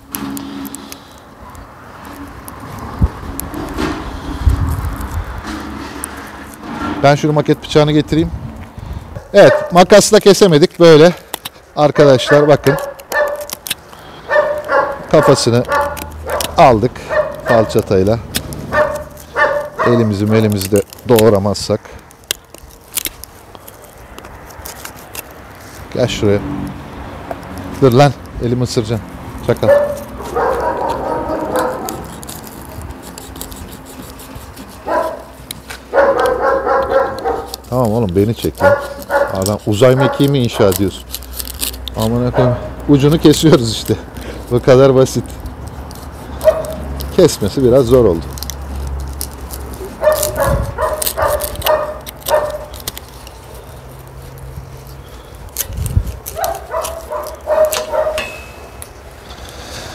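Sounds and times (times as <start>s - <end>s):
dog barking: 9.2s - 9.8s, 12.2s - 13.5s, 14.3s - 17.8s, 18.7s - 20.2s, 29.6s - 32.1s, 34.8s - 37.6s, 38.6s - 40.8s, 42.3s - 42.7s, 46.4s - 46.8s, 50.0s - 52.7s, 56.4s - 58.3s
knife blade clicking and scraping: 12.6s - 21.4s, 29.5s - 59.9s.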